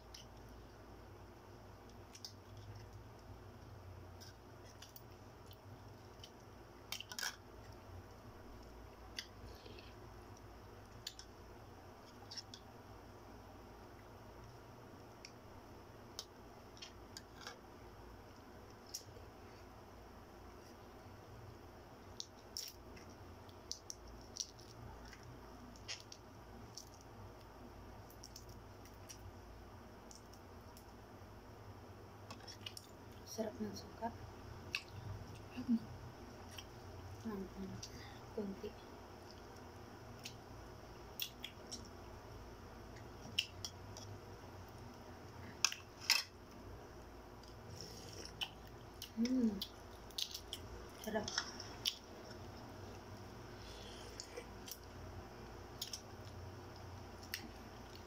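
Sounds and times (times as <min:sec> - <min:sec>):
eggshells cracking and peeling: 0:04.2 - 0:07.8, 0:22.1 - 0:29.3, 0:48.3 - 0:52.5.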